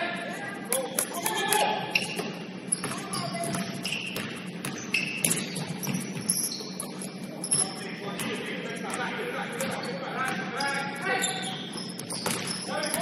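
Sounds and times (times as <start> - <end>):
sneaker squeaks: 0.7 - 8.4, 9.5 - 13.0
basketball bouncing: 2.8 - 6.4, 12.0 - 12.6.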